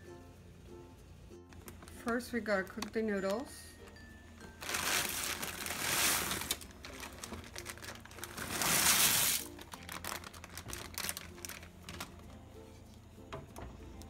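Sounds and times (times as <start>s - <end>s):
plastic bag crinkling: 1.6s - 3.5s, 4.5s - 12.3s
dry noodles rattling into pot: 4.6s - 12.1s.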